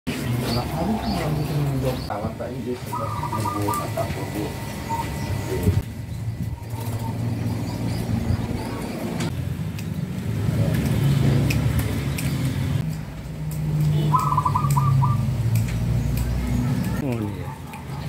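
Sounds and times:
doves calling: 0.1s - 9.3s, 13.5s - 18.0s
low motor hum: 0.2s - 17.0s
rapid bird trill: 2.9s - 5.6s, 14.0s - 15.5s.

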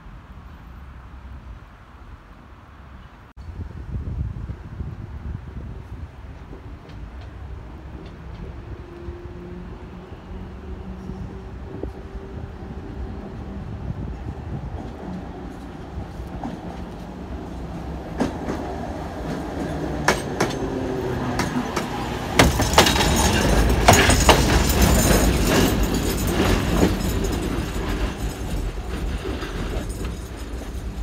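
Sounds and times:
tram passing: 0.0s - 31.0s
wheels clicking over rail joints: 14.7s - 31.0s.

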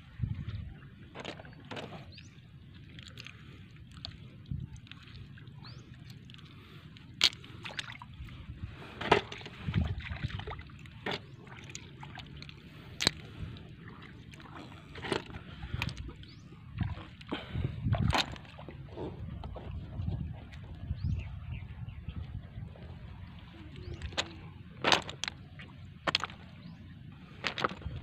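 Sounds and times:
hands sloshing in muddy water: 0.0s - 20.9s.

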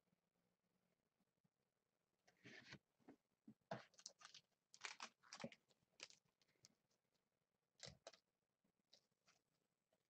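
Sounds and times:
cards and packaging rustling: 3.8s - 6.3s.

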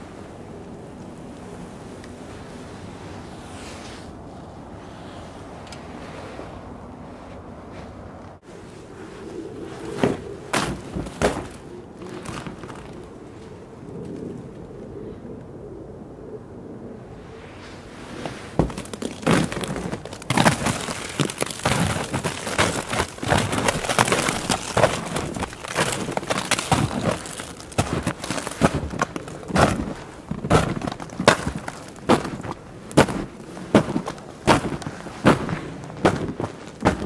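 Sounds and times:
footsteps crunching in snow: 7.1s - 13.5s, 17.6s - 37.0s.

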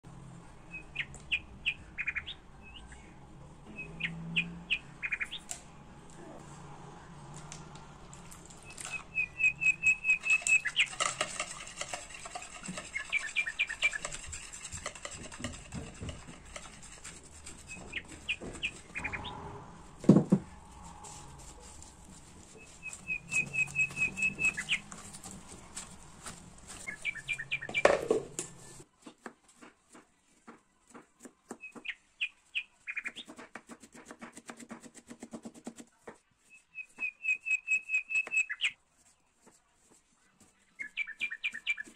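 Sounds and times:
work in a bowl: 0.0s - 41.9s
small bird chirping: 3.7s - 5.5s, 8.6s - 11.0s, 12.4s - 14.5s, 17.7s - 19.4s, 22.5s - 25.1s, 26.7s - 28.0s, 36.4s - 38.8s, 40.5s - 41.9s.

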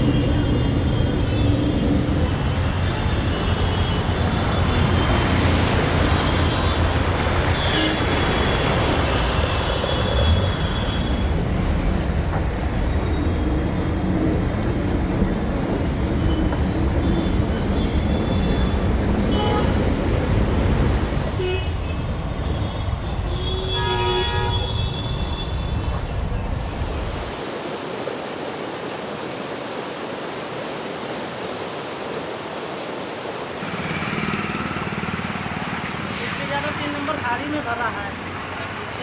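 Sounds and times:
low rumbling street noise: 0.0s - 39.0s
vehicle horn tooting: 19.3s - 19.7s, 23.3s - 25.6s
flood water rushing over weir: 26.5s - 39.0s.

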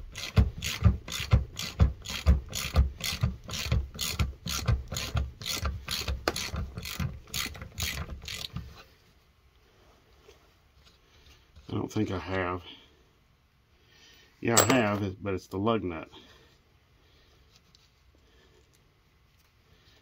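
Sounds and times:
hand ratchet clicking: 0.1s - 8.6s.

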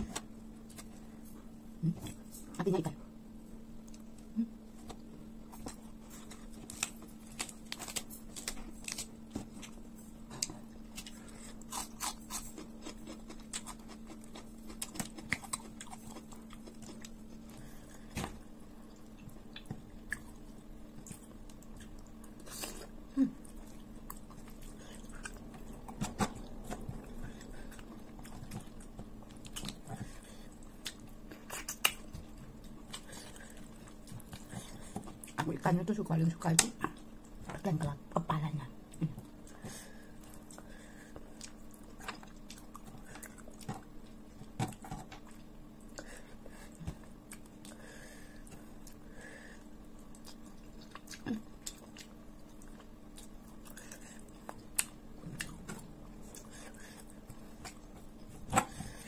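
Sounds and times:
steady low hum: 0.0s - 59.0s
person chewing food: 3.6s - 35.5s, 38.9s - 59.0s
mouth clicks and crunches: 30.8s - 35.4s.

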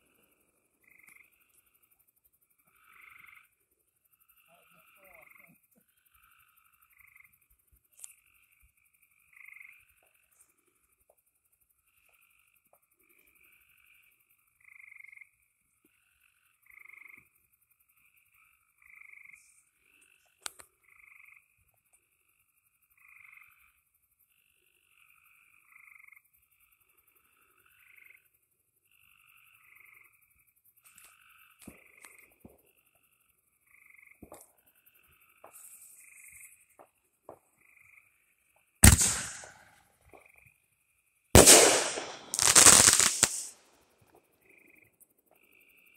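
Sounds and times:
frogs calling: 0.7s - 39.6s
fireworks mortar bang: 38.8s - 39.6s, 41.4s - 43.5s.

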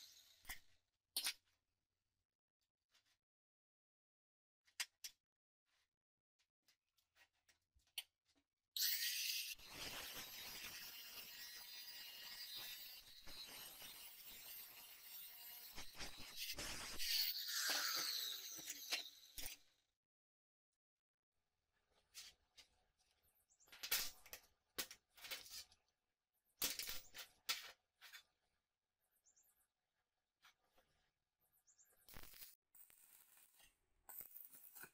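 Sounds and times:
angle grinder cutting steel: 8.8s - 19.4s.

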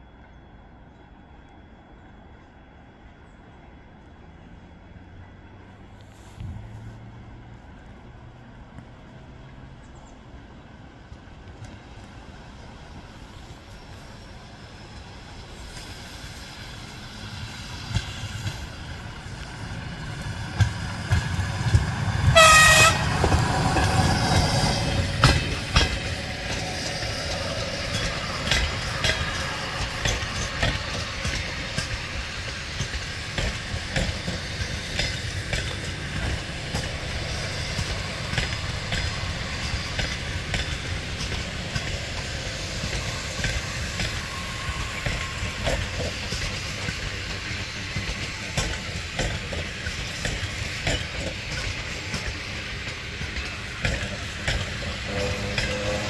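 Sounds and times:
train wheels clicking over rail joints: 11.0s - 56.0s
train horn toot: 22.2s - 23.5s, 54.9s - 56.0s.

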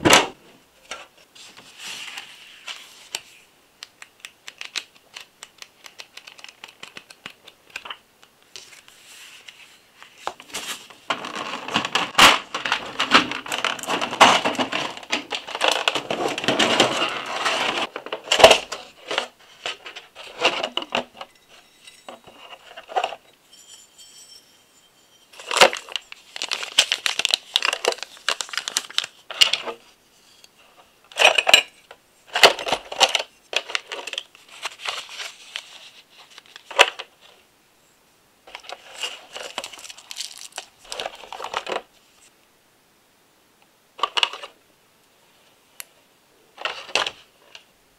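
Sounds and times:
paper pages turning: 4.2s - 21.2s, 25.4s - 29.9s
plastic packaging crackling: 10.5s - 21.2s, 25.3s - 29.8s, 38.5s - 41.8s.

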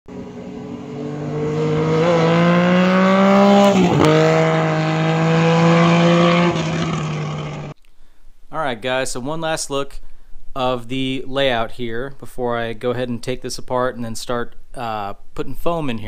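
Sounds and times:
vehicle engine revving: 0.1s - 7.8s.

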